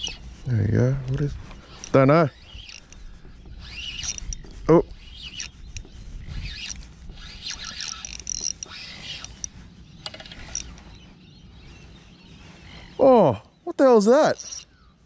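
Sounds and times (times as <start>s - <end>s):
fishing reel whirring and clicking: 1.0s - 10.9s, 14.2s - 14.8s.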